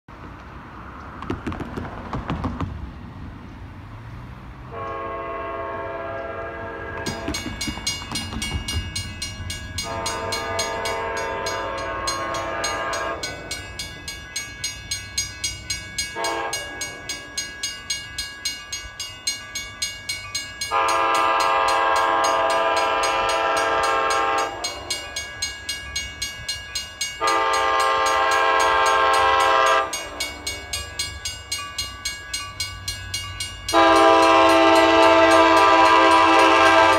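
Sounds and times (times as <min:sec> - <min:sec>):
train air horn blasts: 0:04.7 - 0:07.4, 0:09.8 - 0:13.6, 0:16.2 - 0:17.2, 0:20.7 - 0:25.2, 0:27.2 - 0:30.7, 0:33.7 - 0:36.9
crossing warning bell ringing: 0:04.7 - 0:36.9.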